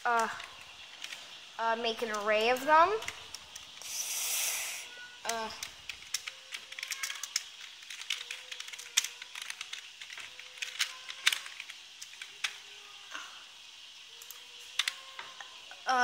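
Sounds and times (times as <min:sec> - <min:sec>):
keyboard typing: 0:05.2 - 0:12.6.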